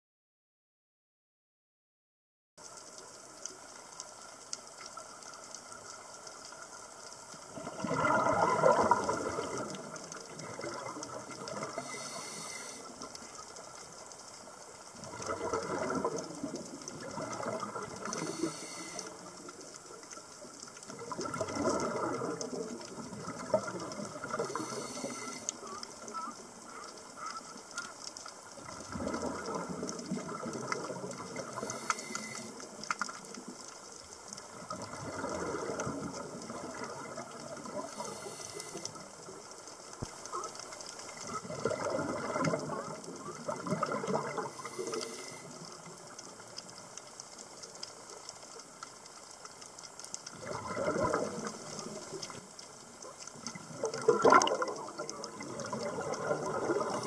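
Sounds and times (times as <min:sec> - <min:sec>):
faint steady hiss: 0:02.6 - 0:57.0
underwater diver bubbles: 0:02.6 - 0:57.0.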